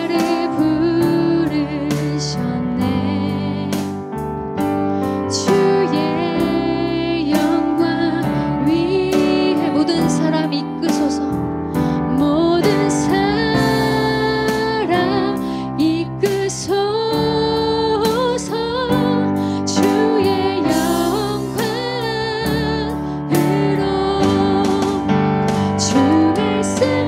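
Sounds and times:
worship band playing: 0:00.0 - 0:16.4, 0:17.3 - 0:27.0
female voices singing: 0:25.8 - 0:27.0.

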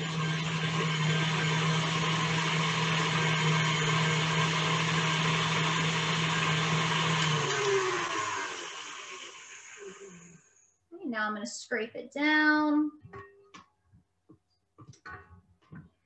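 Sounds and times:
electric mixer motor running: 0:00.0 - 0:10.6.

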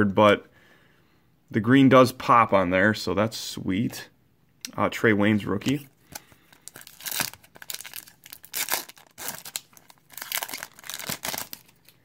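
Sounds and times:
foil wrapper tearing and crinkling: 0:06.2 - 0:12.0.

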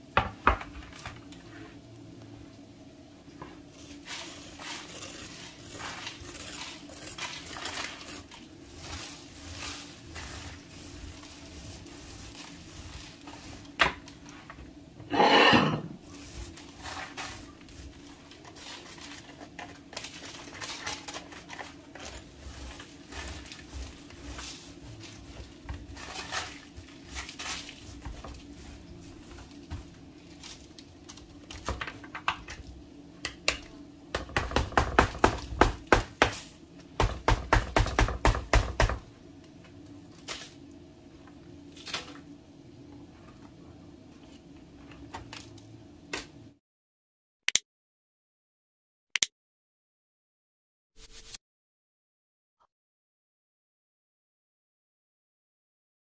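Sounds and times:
faint steady hum: 0:00.0 - 0:46.6
paper rustling: 0:03.8 - 0:14.3.

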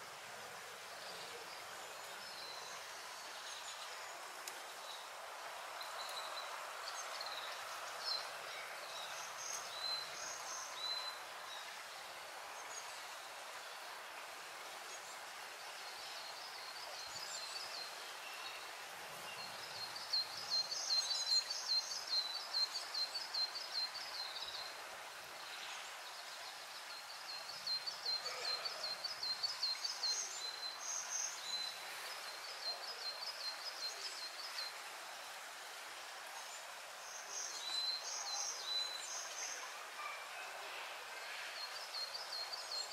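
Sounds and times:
stream trickling over rocks: 0:00.0 - 0:42.9.

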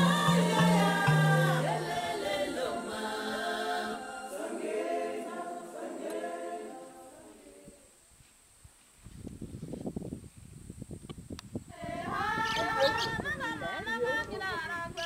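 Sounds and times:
choir singing: 0:00.0 - 0:07.9, 0:11.7 - 0:13.0.

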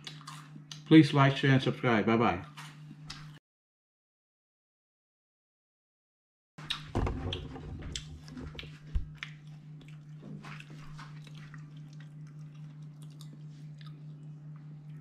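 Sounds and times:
person chewing crunchy food: 0:00.0 - 0:00.9, 0:07.9 - 0:15.0
steady low hum: 0:06.6 - 0:15.0.

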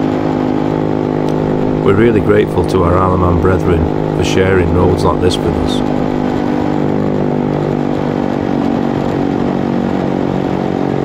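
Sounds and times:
motorbike engine running steadily: 0:00.0 - 0:11.0.

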